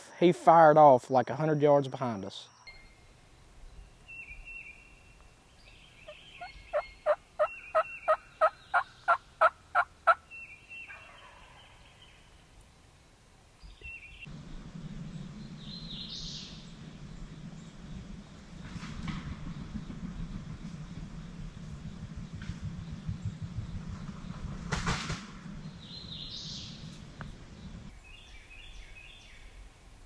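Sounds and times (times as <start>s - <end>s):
high bird chirps: 3.7s - 9.2s
turkey yelps: 6.1s - 10.2s, 10.8s - 11.8s
steady low hum: 12.2s - 28.0s.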